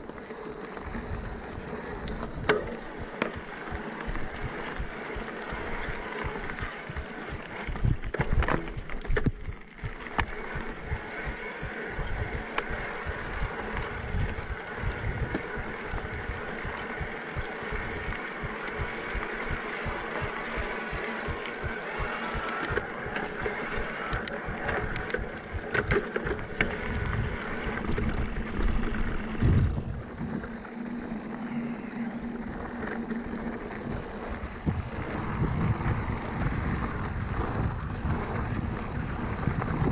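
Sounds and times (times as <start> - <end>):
electric motor whine: 0.0 - 39.9
bike frame rattling and knocking: 2.2 - 29.9.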